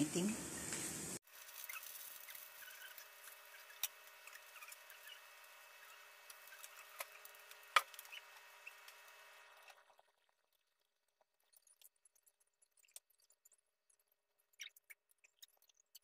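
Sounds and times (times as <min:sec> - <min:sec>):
eggplant sizzling in oil: 0:00.0 - 0:10.4.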